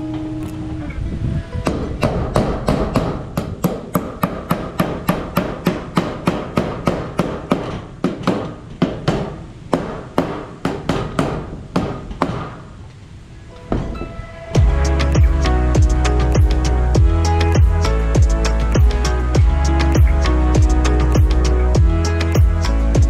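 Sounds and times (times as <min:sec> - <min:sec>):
hammer driving nails: 0:01.6 - 0:12.6.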